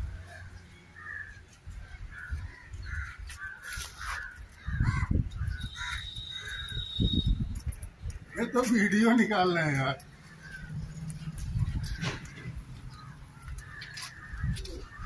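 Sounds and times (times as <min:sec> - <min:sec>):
crows cawing: 0:01.0 - 0:01.5, 0:02.1 - 0:06.7, 0:10.2 - 0:10.9, 0:12.1 - 0:15.0
thin high whistle: 0:06.0 - 0:07.5.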